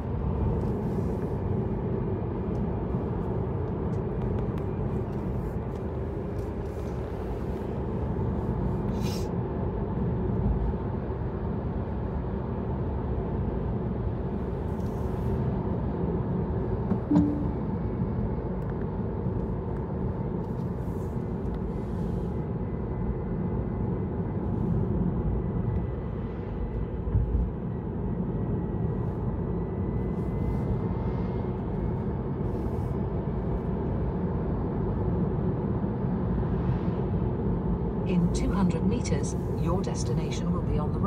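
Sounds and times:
car engine and road rumble: 0:00.0 - 0:41.0
short beep: 0:17.0 - 0:17.7.

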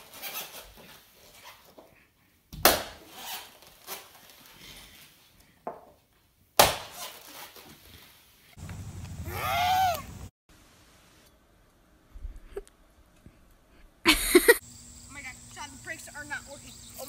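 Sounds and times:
rustling: 0:03.0 - 0:06.3, 0:06.9 - 0:09.2.

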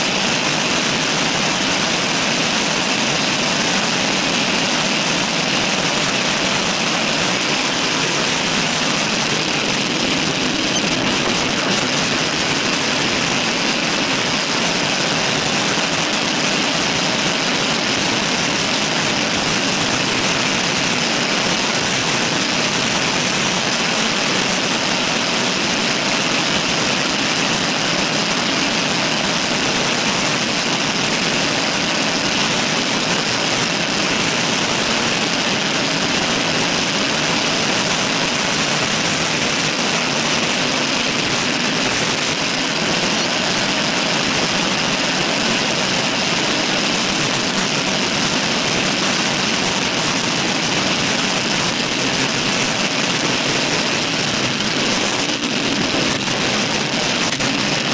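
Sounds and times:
road noise: 0:00.0 - 0:23.0, 0:38.2 - 0:57.9
wind rushing on microphone: 0:05.9 - 0:16.6.

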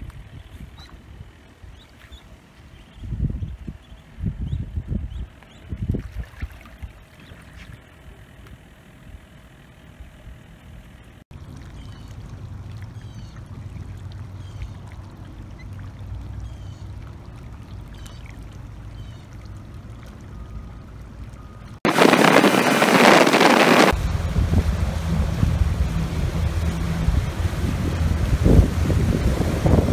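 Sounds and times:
low steady hum: 0:00.0 - 0:22.0, 0:23.8 - 0:29.9
motorboat under way: 0:00.0 - 0:29.9
wind on microphone: 0:02.8 - 0:07.0, 0:21.9 - 0:29.9
water rushing past hull: 0:11.3 - 0:29.9.

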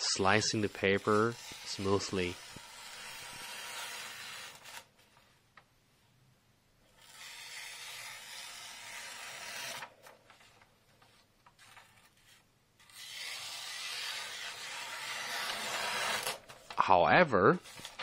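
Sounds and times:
knife slicing paper: 0:00.3 - 0:04.9, 0:07.0 - 0:09.9, 0:11.6 - 0:16.6.

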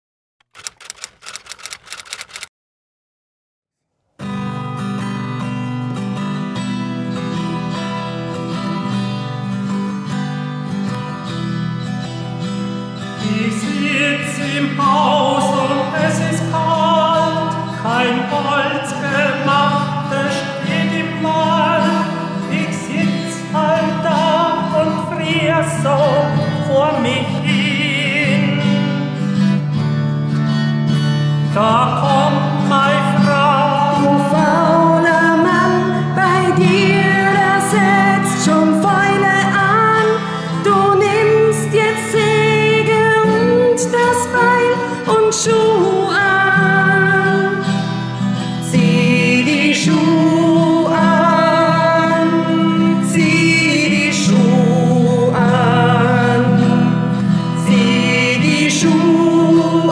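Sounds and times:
strummed acoustic guitar: 0:04.2 - 0:59.9
woman singing: 0:31.6 - 0:47.8, 0:48.6 - 0:57.0, 0:57.6 - 0:59.9.

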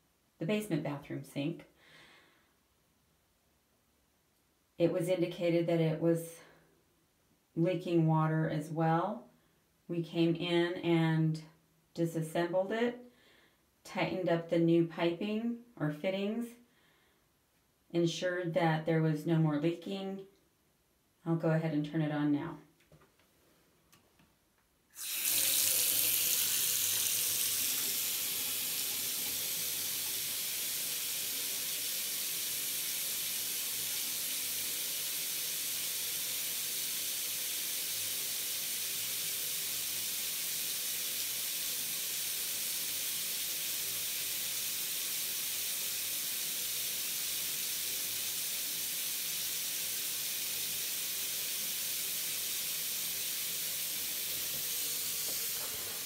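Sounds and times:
faucet water running into sink: 0:25.0 - 0:56.0.

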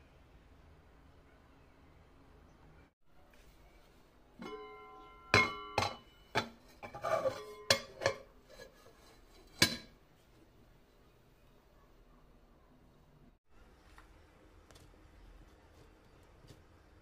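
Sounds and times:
metal pot lid knocking on rim: 0:04.4 - 0:08.3
metal scraping on metal: 0:05.8 - 0:09.9.

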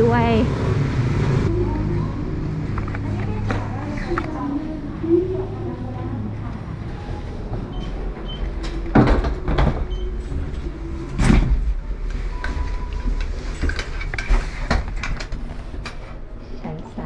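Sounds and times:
steady low hum: 0:00.0 - 0:17.0
lift doors sliding shut: 0:07.0 - 0:16.2.

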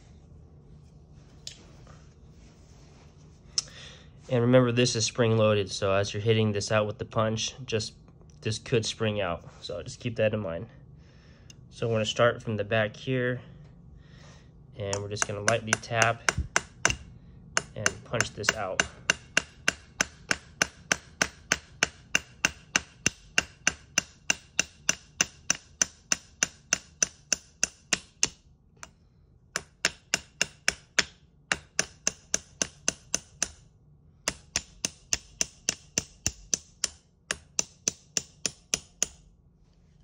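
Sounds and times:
hammer tapping metal punch: 0:14.9 - 0:39.3.

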